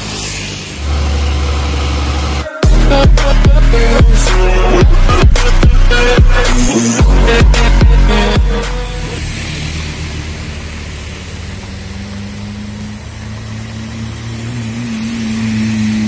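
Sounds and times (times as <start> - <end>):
electronic music: 0.0 - 10.5
motorcycles passing: 0.0 - 16.0
truck engine humming: 0.0 - 16.0.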